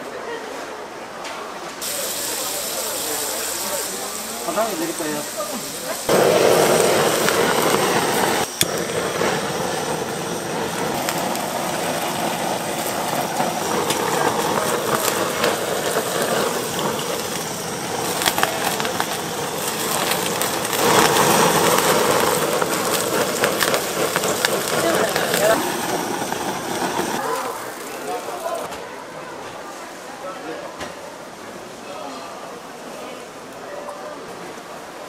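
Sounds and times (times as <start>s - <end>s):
blowtorch hissing: 1.8s - 28.7s
butter sizzling and crackling: 1.8s - 28.7s.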